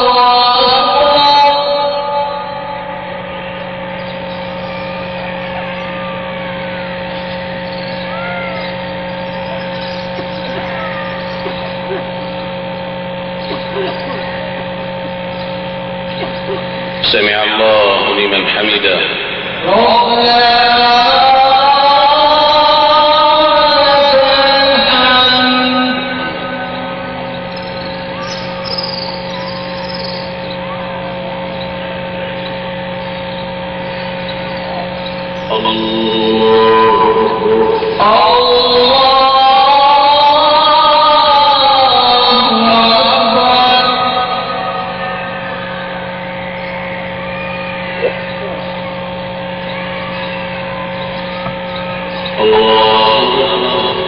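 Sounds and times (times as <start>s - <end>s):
chanting voice over loudspeakers: 0.0s - 54.0s
electrical hum: 0.0s - 54.0s
broadcast hiss: 2.8s - 21.3s, 22.8s - 39.2s
faint high chirps: 3.3s - 17.0s, 26.7s - 38.4s, 45.0s - 53.2s
faint rising chirps: 7.0s - 14.4s, 27.2s - 31.8s.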